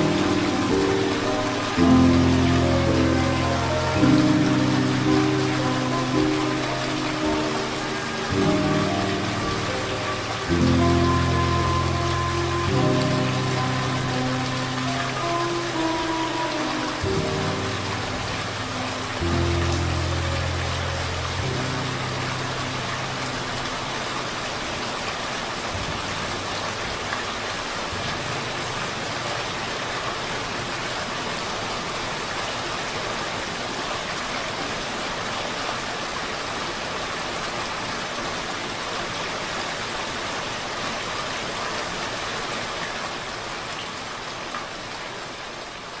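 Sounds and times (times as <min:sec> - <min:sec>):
low music notes: 0:00.0 - 0:25.0
steady rain hiss: 0:00.0 - 0:46.0.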